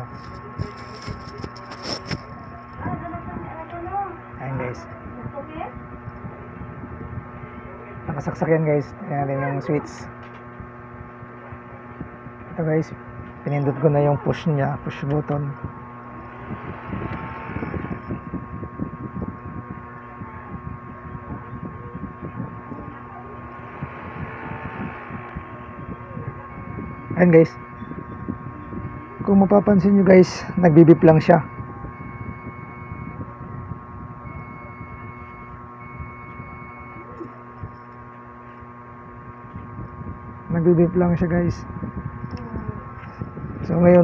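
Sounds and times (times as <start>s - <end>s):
computer fan humming: 0.0s - 44.0s
high whine: 0.0s - 44.0s
long high beeps: 15.6s - 19.9s, 20.5s - 37.9s.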